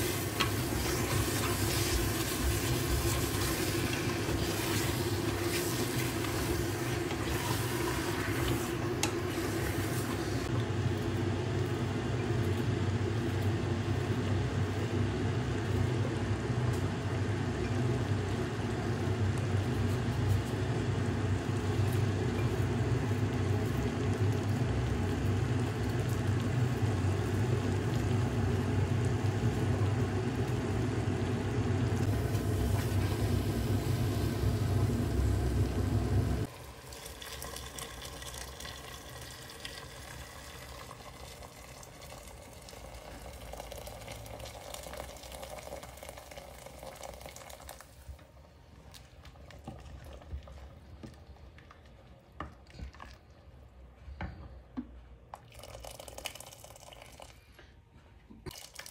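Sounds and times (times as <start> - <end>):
soup simmering: 0.0 - 53.9
steady low rumble: 32.0 - 36.5
water pouring into a pot: 36.4 - 48.1, 55.4 - 57.4, 58.5 - 58.9.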